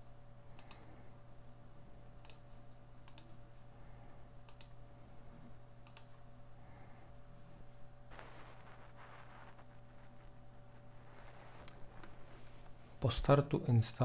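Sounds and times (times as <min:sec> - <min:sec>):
low steady hum: 0:00.0 - 0:14.0
computer mouse clicking: 0:00.5 - 0:00.9, 0:02.2 - 0:03.4, 0:04.4 - 0:04.8, 0:05.8 - 0:06.2.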